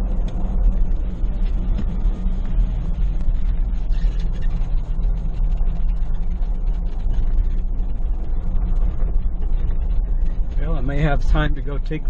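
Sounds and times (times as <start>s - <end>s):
engine and tyres rumbling: 0.0s - 12.0s.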